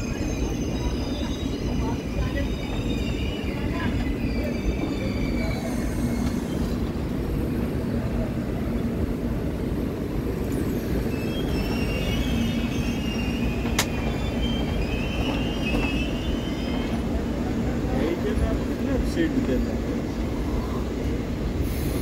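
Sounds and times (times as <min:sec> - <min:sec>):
wheel squeal: 0:00.0 - 0:07.1, 0:10.6 - 0:17.8
train wheels rumbling on track: 0:00.0 - 0:22.0.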